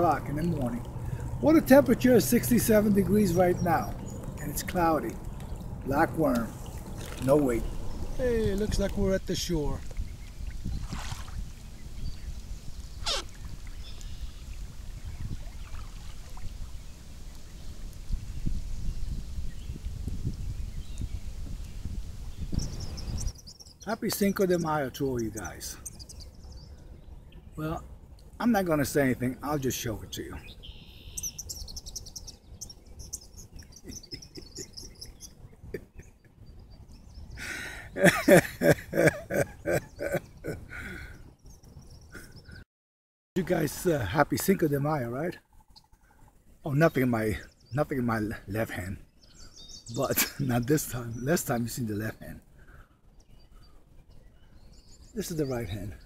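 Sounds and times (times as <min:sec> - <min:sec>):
water trickling and dripping: 0:00.0 - 0:18.6
steady low rumble: 0:00.0 - 0:23.1
small bird chirping: 0:00.0 - 0:27.6, 0:29.5 - 0:38.7, 0:43.5 - 0:52.4, 0:53.1 - 0:56.0
man laughing: 0:33.6 - 0:36.1, 0:37.4 - 0:41.2, 0:49.9 - 0:50.7.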